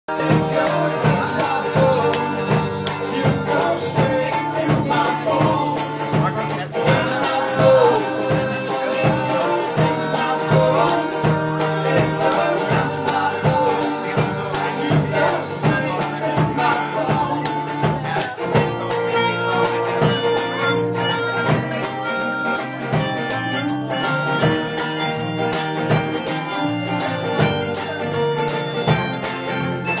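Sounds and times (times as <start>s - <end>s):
woman singing lead vocal: 0.1s - 18.4s
shaker rhythm: 0.1s - 30.0s
strummed guitars: 0.1s - 30.0s.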